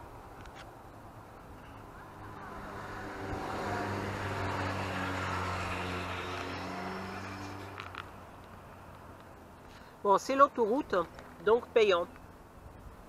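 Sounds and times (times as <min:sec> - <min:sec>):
tyre and road noise: 0:00.0 - 0:13.0
lorry diesel engine drone: 0:01.5 - 0:07.8.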